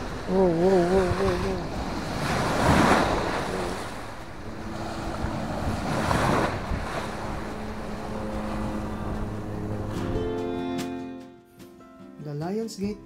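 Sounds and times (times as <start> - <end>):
waves washing on shore: 0.0 - 9.2
wind buffeting microphone: 0.0 - 10.4.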